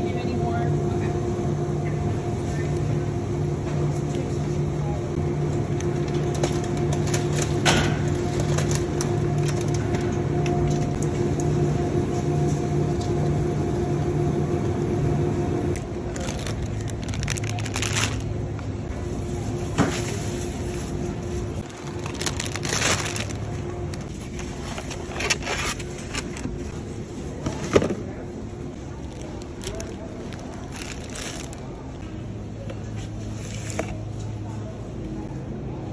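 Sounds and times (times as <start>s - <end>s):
steady low hum: 0.0s - 35.9s
plastic bags crinkling: 16.1s - 18.4s, 21.6s - 26.6s, 29.0s - 31.9s.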